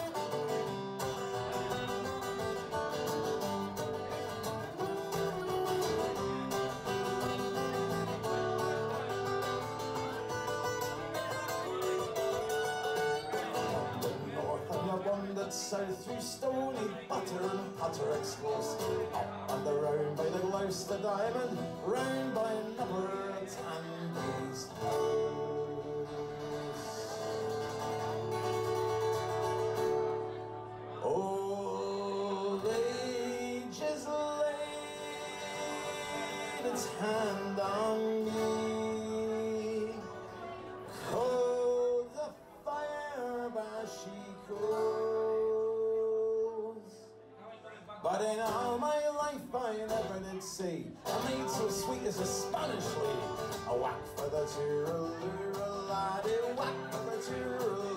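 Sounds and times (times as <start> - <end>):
acoustic guitar: 0.0 - 57.9
person singing: 3.7 - 28.6, 30.7 - 47.2, 48.0 - 57.9.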